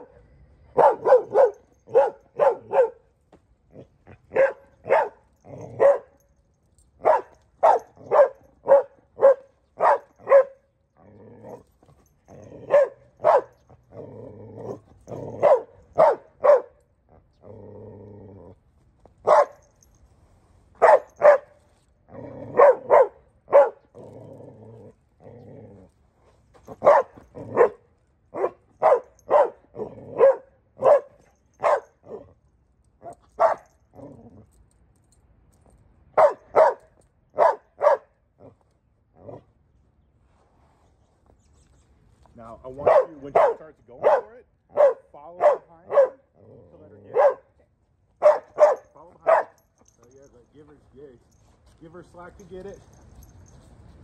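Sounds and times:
dog barking sharply: 0:00.8 - 0:03.0, 0:04.3 - 0:05.2, 0:07.0 - 0:10.6, 0:12.7 - 0:13.5, 0:15.4 - 0:16.7, 0:19.3 - 0:19.6, 0:20.8 - 0:21.5, 0:22.6 - 0:23.8, 0:26.8 - 0:27.8, 0:28.4 - 0:29.6, 0:30.2 - 0:32.2, 0:36.2 - 0:36.8, 0:37.4 - 0:38.1, 0:42.8 - 0:46.2, 0:47.1 - 0:47.5, 0:48.2 - 0:49.6
dog growling low: 0:05.4 - 0:05.8, 0:11.0 - 0:12.7, 0:13.8 - 0:15.4, 0:17.1 - 0:18.7, 0:22.1 - 0:22.6, 0:23.9 - 0:26.0, 0:29.7 - 0:30.2, 0:33.9 - 0:34.5, 0:46.3 - 0:47.1.

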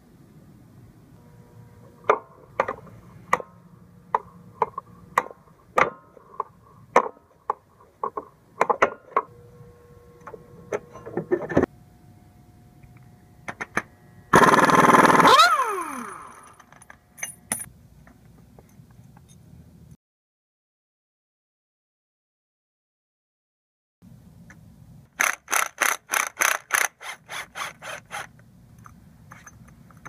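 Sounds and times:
metal tools clinking: 0:16.2 - 0:17.7.

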